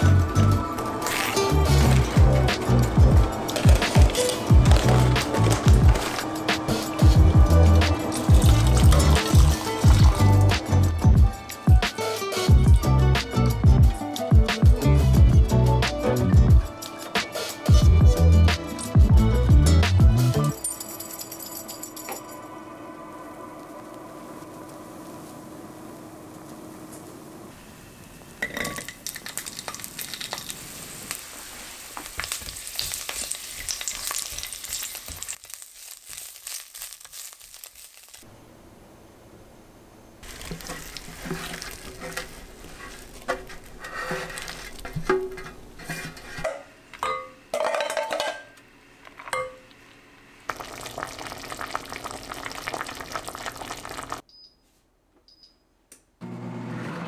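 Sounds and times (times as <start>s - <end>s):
utensils clinking: 0.8s - 10.5s, 20.5s - 22.5s, 40.2s - 48.6s
vegetables sizzling in hot oil: 29.0s - 38.2s, 40.2s - 42.2s
spatula scraping a pan: 40.2s - 46.6s.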